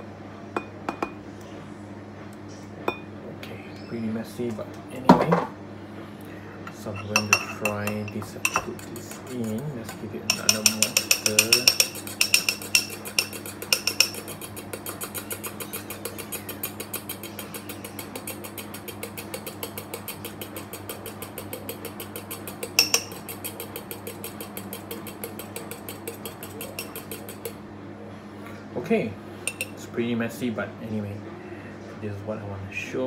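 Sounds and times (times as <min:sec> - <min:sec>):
spoon clicking against bowl: 0:07.1 - 0:27.6, 0:29.5 - 0:29.8.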